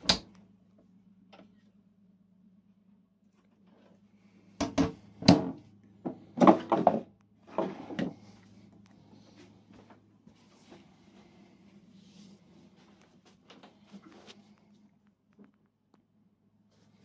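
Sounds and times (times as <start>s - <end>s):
drawers and cupboard doors shutting: 6.4s - 8.2s.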